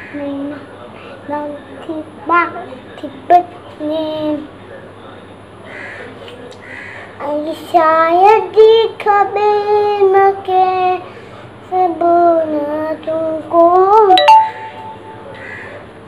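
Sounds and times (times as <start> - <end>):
boy singing: 7.2 - 11.0, 11.7 - 14.2.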